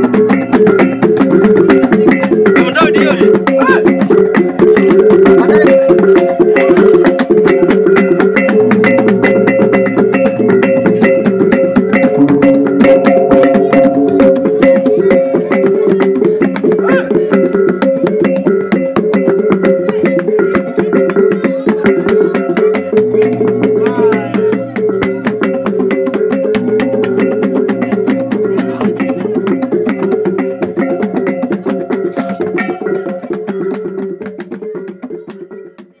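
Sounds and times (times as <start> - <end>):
gong ensemble playing: 7.6 - 17.9, 22.0 - 34.3.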